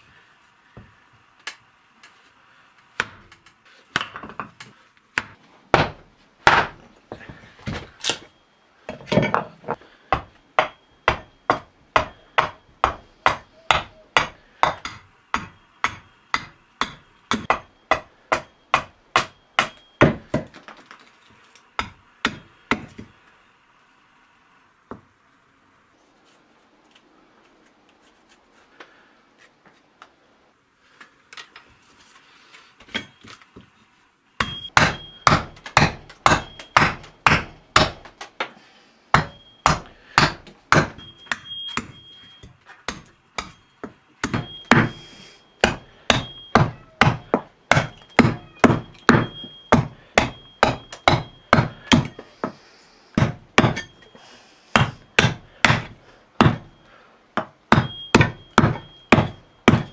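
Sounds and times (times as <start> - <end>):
hatchet chopping wood: 3.0 - 6.8, 10.1 - 20.7, 21.8 - 23.1, 34.4 - 38.5, 39.1 - 45.0, 45.6 - 52.6, 53.2 - 54.1, 54.7 - 56.8, 57.4 - 59.9.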